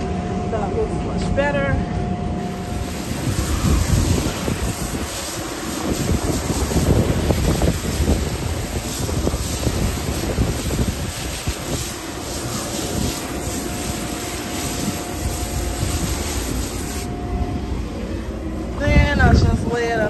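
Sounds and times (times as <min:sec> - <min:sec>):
faint steady whine: 0:00.0 - 0:20.0
wind buffeting microphone: 0:01.4 - 0:20.0
car wash equipment rushing: 0:02.4 - 0:18.0.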